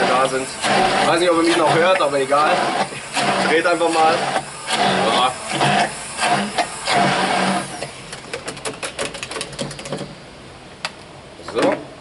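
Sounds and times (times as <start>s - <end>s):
stick blender motor humming: 0.0s - 8.0s.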